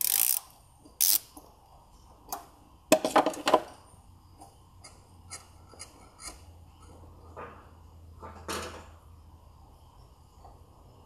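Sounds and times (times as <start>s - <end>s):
hand ratchet clicking: 0.0s - 1.3s.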